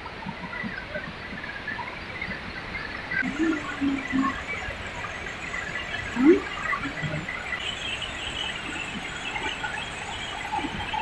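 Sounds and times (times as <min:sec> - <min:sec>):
waterfall roaring: 0:03.2 - 0:11.0.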